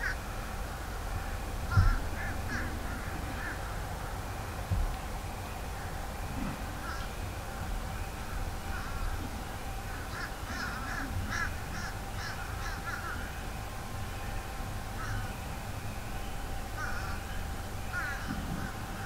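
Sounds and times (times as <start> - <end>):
crows cawing: 0.0 - 4.2, 5.7 - 7.2, 8.2 - 13.5, 14.9 - 15.4, 16.7 - 19.0.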